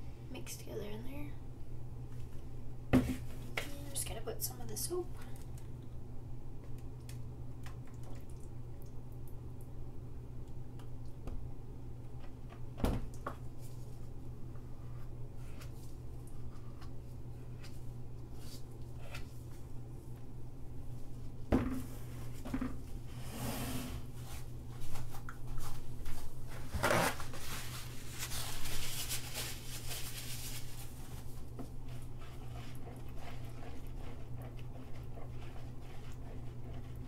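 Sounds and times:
steady low hum: 0.0s - 37.0s
scraping and stirring: 27.5s - 37.0s.

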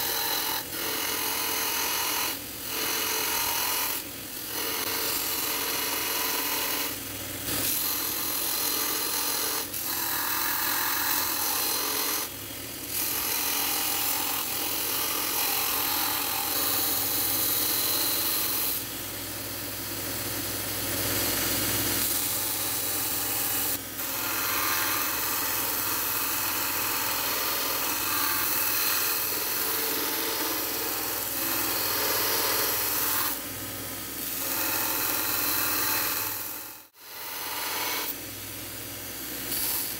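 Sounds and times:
belt sander grinding metal: 0.0s - 18.8s, 21.2s - 33.4s.

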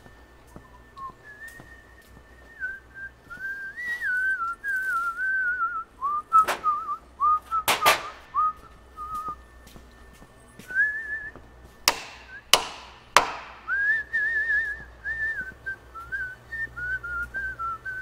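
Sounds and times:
person whistling a tune: 0.0s - 11.4s, 12.1s - 12.6s, 13.3s - 18.0s
sharp metallic knocks: 7.7s - 8.3s, 11.9s - 13.7s.

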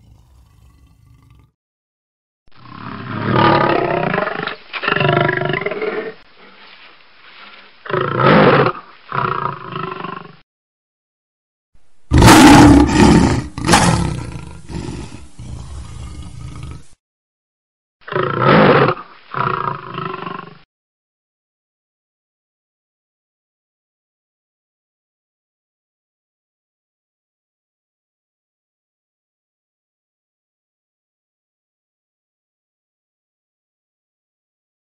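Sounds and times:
lion roaring: 0.0s - 1.5s, 2.6s - 6.2s, 12.1s - 17.0s
lion grunts: 12.1s - 16.9s.

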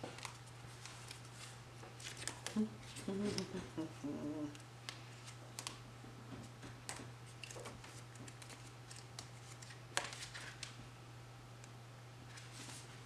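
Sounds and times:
paper pages rustling: 0.0s - 3.6s, 6.9s - 10.8s, 12.3s - 13.0s
steady low hum: 0.0s - 13.0s.

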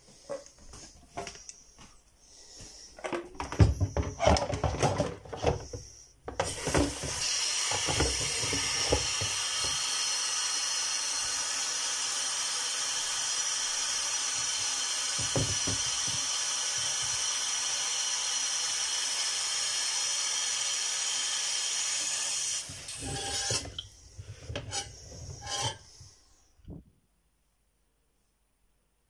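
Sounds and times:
tap water running into bowl: 6.3s - 25.7s.

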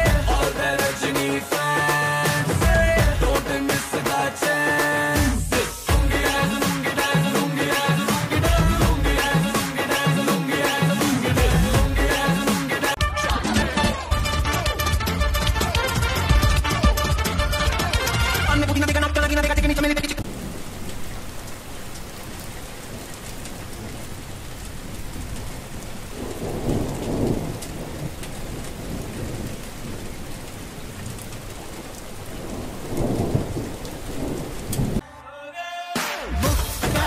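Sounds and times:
steady rain: 0.0s - 13.0s, 20.2s - 35.0s
music: 0.0s - 20.2s, 35.0s - 37.0s
thunder rolling: 24.7s - 35.0s.

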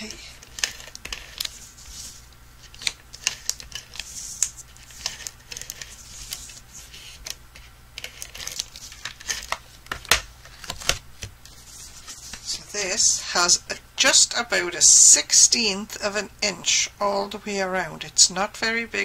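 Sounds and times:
tape roller scratchy strokes: 1.0s - 2.2s, 3.2s - 9.5s.

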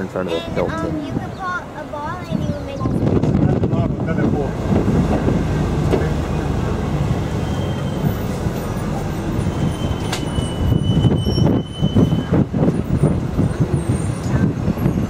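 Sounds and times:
bus engine and road noise: 0.0s - 15.0s
wind gusting on microphone: 0.0s - 15.0s
thin high squeal: 9.4s - 12.3s.

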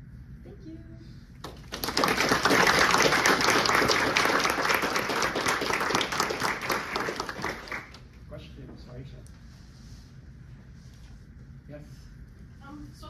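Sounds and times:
audience applauding: 1.4s - 8.1s.

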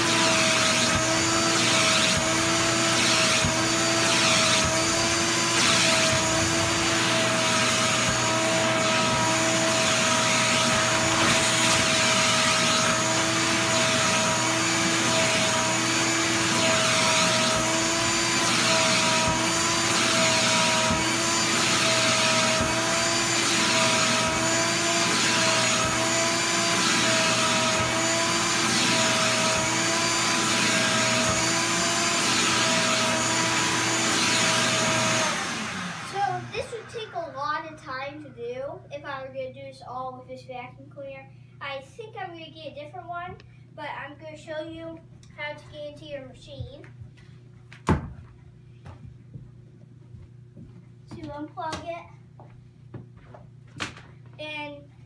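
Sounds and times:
shop vacuum motor whine: 0.0s - 38.2s.

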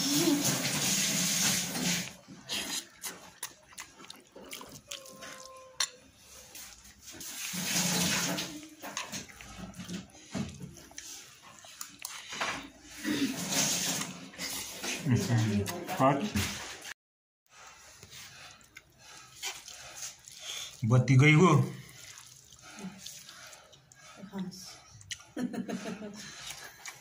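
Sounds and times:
wet mixing noises: 0.0s - 27.0s
mouth sounds of eating: 2.0s - 7.5s, 18.0s - 27.0s.

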